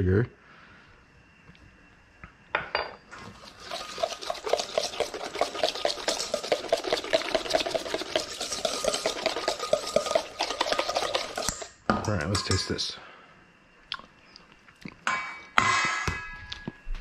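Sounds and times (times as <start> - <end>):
whisk scraping metal bowl: 3.2 - 11.8
bowl ringing: 12.1 - 12.8.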